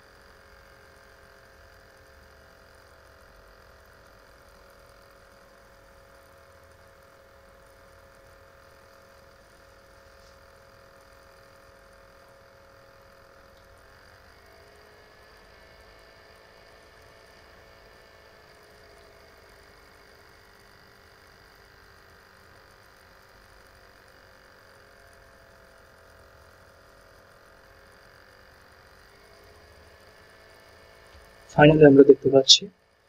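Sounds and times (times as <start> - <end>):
low hum: 31.5 - 32.7.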